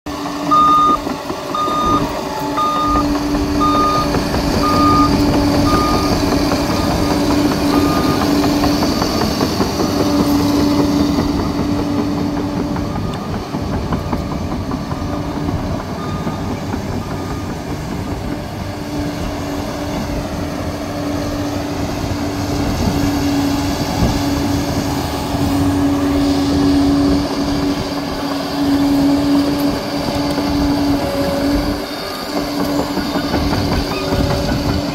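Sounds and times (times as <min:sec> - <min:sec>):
dozer diesel engine running: 0:00.1 - 0:34.9
reversing alarm beeps: 0:00.5 - 0:08.4, 0:16.0 - 0:18.0.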